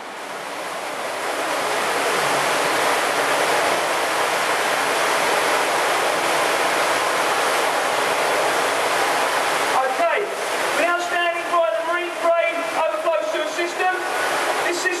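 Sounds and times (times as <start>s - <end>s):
water rushing through channel: 0.0s - 15.0s.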